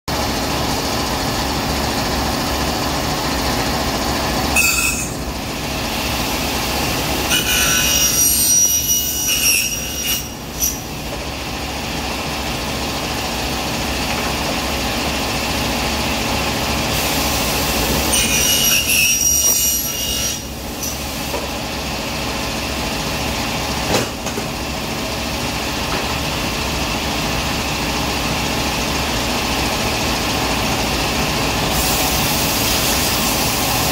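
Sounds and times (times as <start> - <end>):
saw running: 0.4 - 21.0
saw blade screeching through metal: 4.5 - 5.2, 7.3 - 10.8, 18.0 - 21.0.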